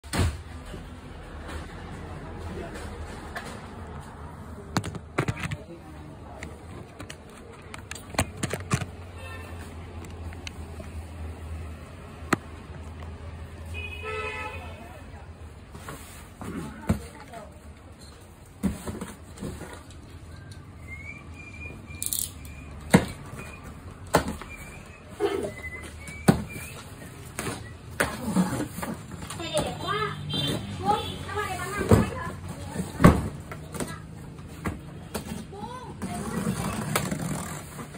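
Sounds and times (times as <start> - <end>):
sharp clicks and knocks: 6.4 - 9.0.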